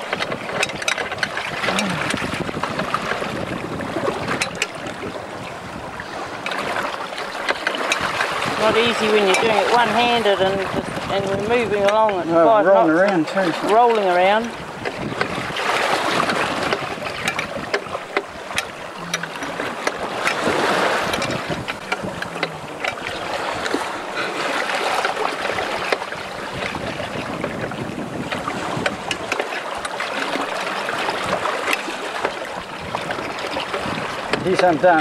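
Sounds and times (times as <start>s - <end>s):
metal clicks and knocks: 0.0s - 2.2s, 21.1s - 23.8s
sea water rushing and splashing: 0.0s - 35.0s.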